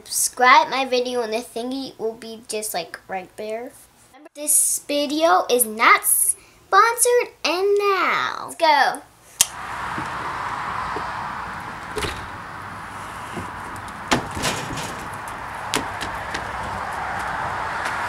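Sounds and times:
steady outdoor hiss: 0.3 - 18.0
storm door opening and shutting: 9.5 - 17.6
flip-flop footsteps on wooden deck: 15.2 - 18.0.

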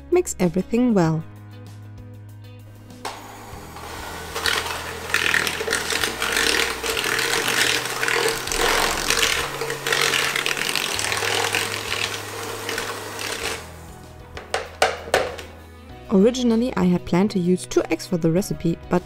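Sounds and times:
electric mixer whining: 3.0 - 15.5
beaters churning in plastic bowl: 3.1 - 15.5.

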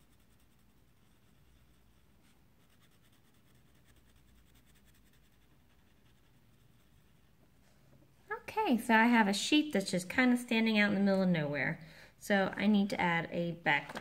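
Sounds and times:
wax crayon scratching on paper: 0.0 - 7.4.

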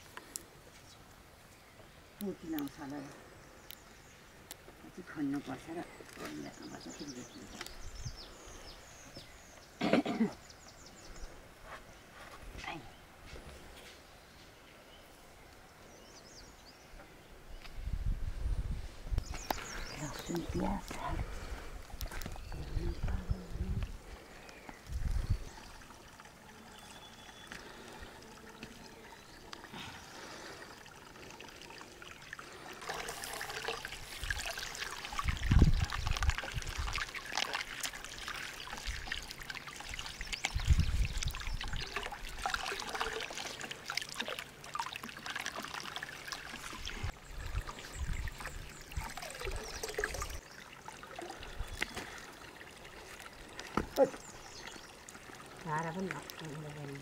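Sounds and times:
water splashing over vegetables: 30.8 - 57.0.

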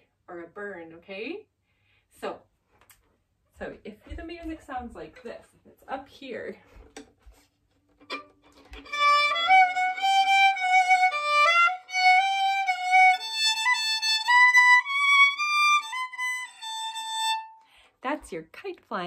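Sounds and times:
solo fiddle slow melody: 8.0 - 17.7.

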